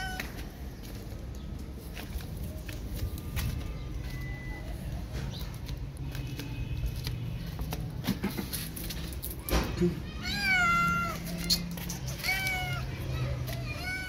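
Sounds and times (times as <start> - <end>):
cat meowing: 0.0 - 0.4, 10.1 - 14.0.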